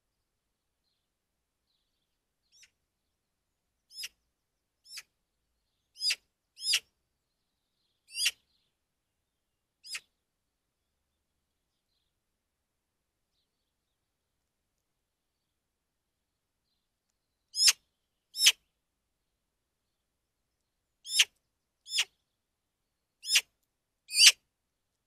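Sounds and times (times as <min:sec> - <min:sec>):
magpie harsh calls: 0:08.1 - 0:08.4, 0:21.1 - 0:21.3, 0:21.9 - 0:22.1, 0:23.2 - 0:23.4, 0:24.1 - 0:24.4.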